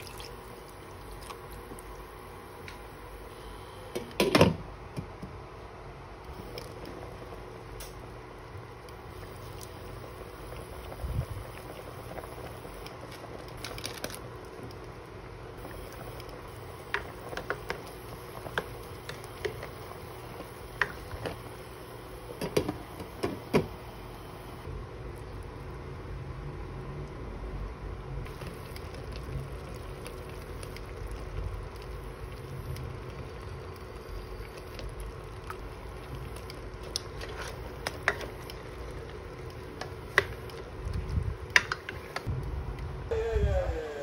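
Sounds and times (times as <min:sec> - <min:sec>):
steady hum: 0:00.0 - 0:44.0
pot bubbling faintly: 0:28.2 - 0:42.8.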